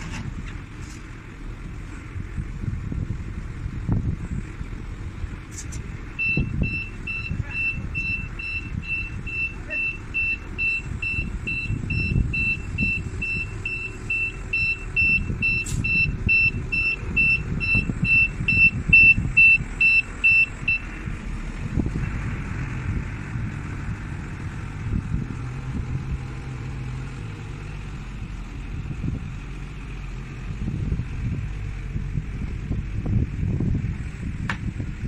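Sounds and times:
diesel engine running: 0.0 - 35.0
reversing alarm beeping: 6.2 - 21.0.

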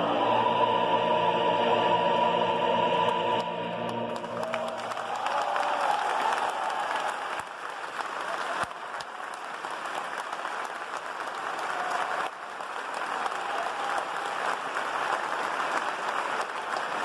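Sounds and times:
audience applauding: 3.9 - 17.0.

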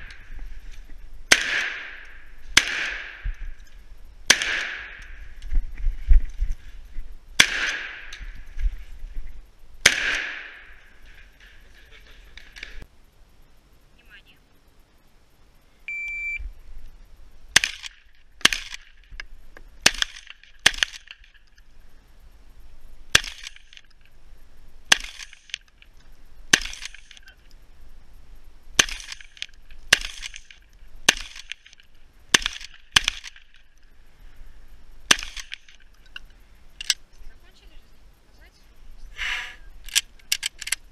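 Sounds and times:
shotgun shots: 1.3 - 3.3, 4.3 - 5.0, 7.4 - 8.1, 9.8 - 10.7, 17.5 - 18.9, 19.8 - 21.1, 23.1 - 23.7, 24.9 - 25.5, 28.8 - 30.5, 32.3 - 33.5, 35.1 - 35.7.

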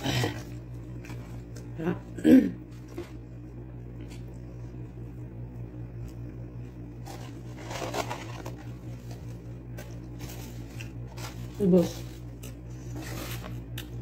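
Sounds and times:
steady low hum: 0.0 - 14.0
paper packaging rustling: 7.0 - 13.6.

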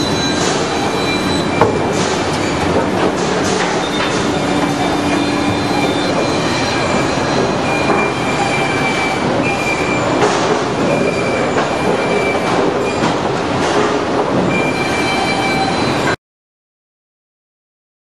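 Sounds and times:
high machine whines: 0.0 - 13.1
factory machinery din: 0.0 - 16.2.

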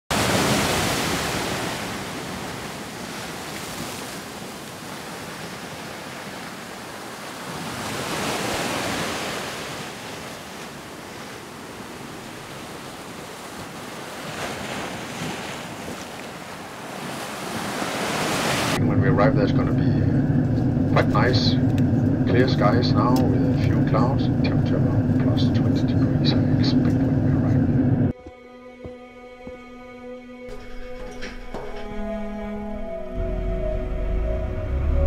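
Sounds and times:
ocean waves breaking: 0.1 - 28.2.

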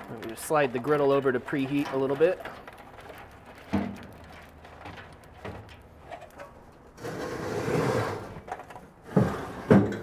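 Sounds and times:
coals clicking: 0.0 - 7.0
charcoal grating on metal: 7.0 - 8.4.

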